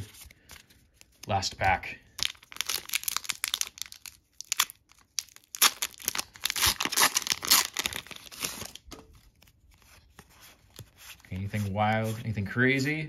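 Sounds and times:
foil wrapper crinkling: 2.2s - 8.9s.

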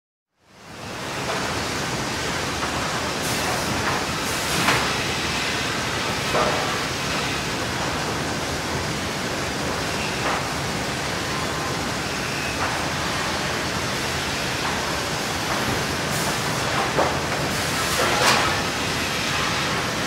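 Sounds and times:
sawmill machinery running: 0.7s - 20.0s.

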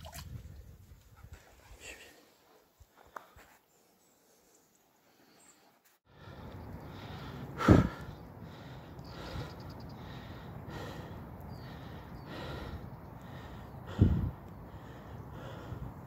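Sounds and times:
person breathing hard: 6.1s - 16.0s.

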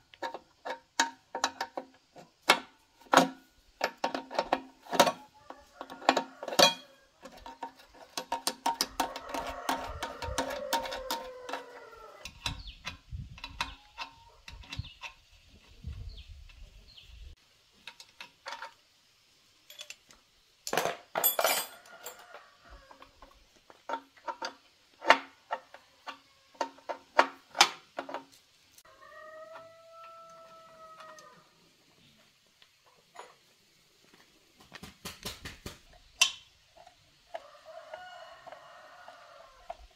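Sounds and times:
metal hand tools clanking: 0.2s - 11.7s, 20.7s - 22.2s
spanners rattling in toolbox: 20.7s - 22.2s.

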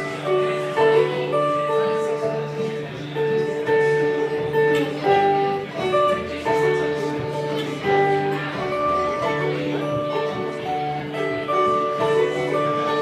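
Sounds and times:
acoustic guitar: 0.0s - 13.0s
banjo: 0.0s - 13.0s
upright double bass: 0.0s - 13.0s.

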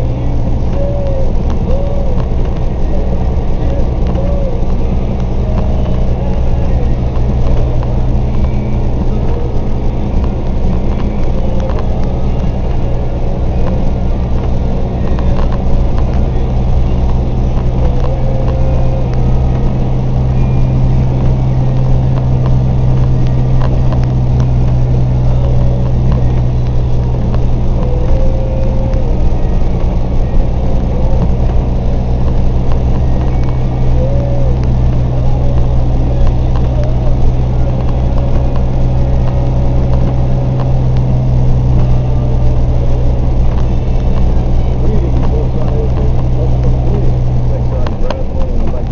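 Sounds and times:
truck engine hum: 0.0s - 48.9s.

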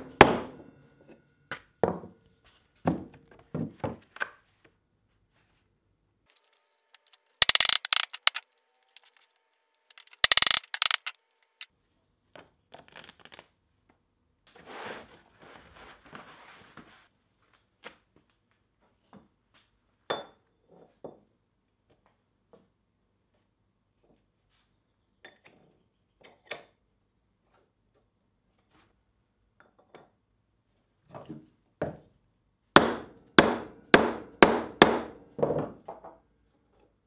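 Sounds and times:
metallic clink: 7.0s - 8.4s, 9.9s - 11.1s.

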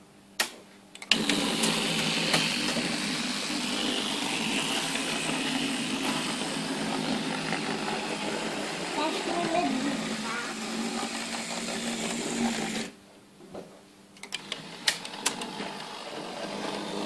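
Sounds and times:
model locomotive rumble: 1.1s - 12.9s.

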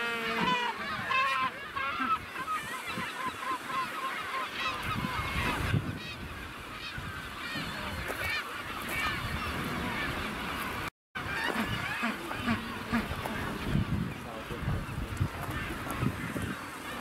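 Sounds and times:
penguins honking in chorus: 0.0s - 2.7s.

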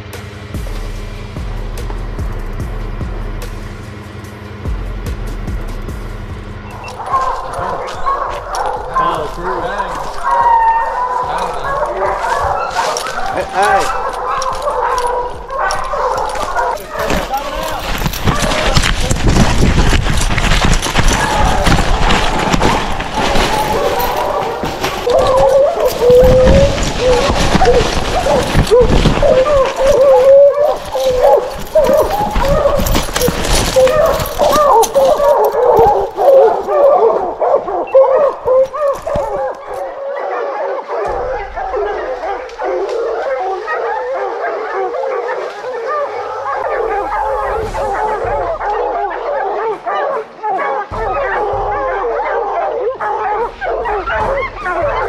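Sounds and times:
heavy running footfalls: 4.7s - 39.9s
hounds baying: 6.6s - 55.0s
rustle of brush and dry leaves: 6.7s - 40.0s, 41.1s - 49.5s.

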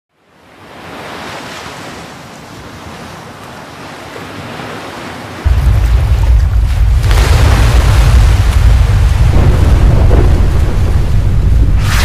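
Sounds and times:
steady rushing noise: 5.4s - 12.0s.

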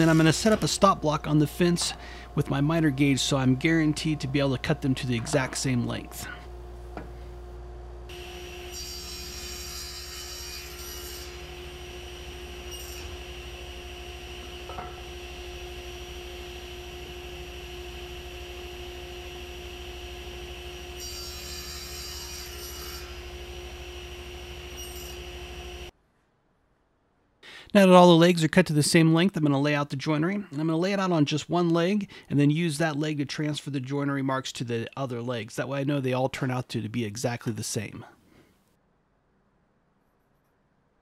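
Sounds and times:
saw blade rasping through wood: 0.0s - 0.7s
table saw humming: 0.0s - 6.6s, 8.1s - 25.9s.

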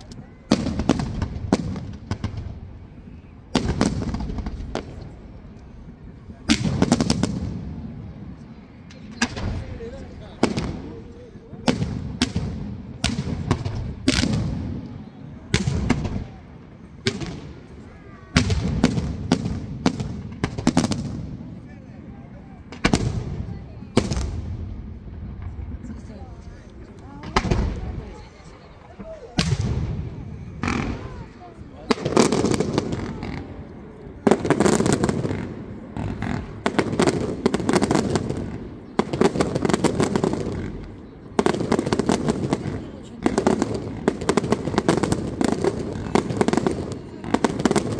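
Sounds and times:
firework bangs with rumbling echo: 0.4s - 2.8s, 3.5s - 5.2s, 6.3s - 17.7s, 18.3s - 26.2s, 27.2s - 47.9s.

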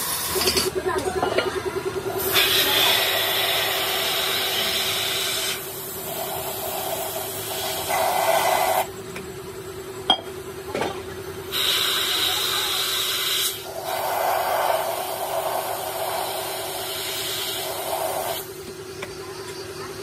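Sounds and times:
paint spray gun hissing: 2.2s - 8.9s, 11.5s - 18.5s.

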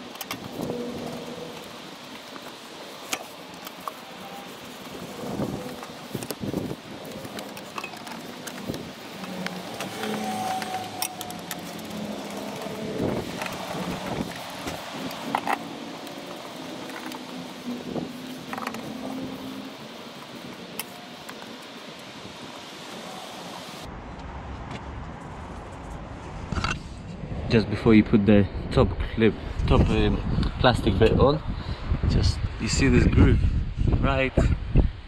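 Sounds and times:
clicks and knocks of handled parts: 0.0s - 22.1s
outdoor background noise: 0.0s - 35.0s.

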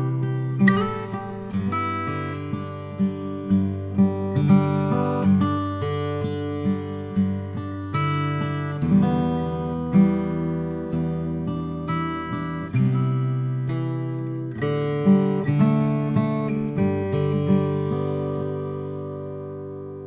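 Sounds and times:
acoustic guitar strumming chords: 0.0s - 20.0s.

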